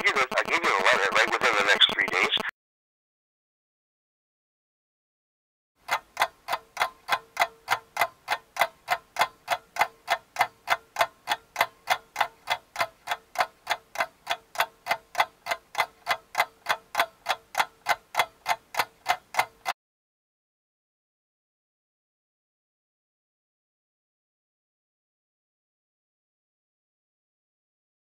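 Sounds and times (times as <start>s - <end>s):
rapid clock-like ticking: 5.8s - 19.8s.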